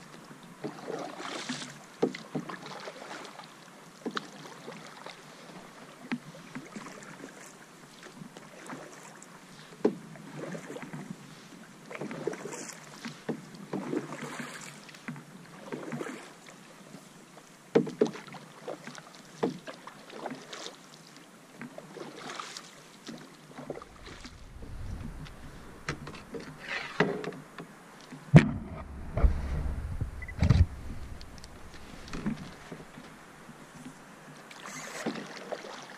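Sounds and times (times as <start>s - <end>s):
paddle splashing in water: 0.6s - 17.1s, 17.7s - 35.9s
wind rumble on microphone: 23.7s - 26.6s, 28.3s - 33.6s.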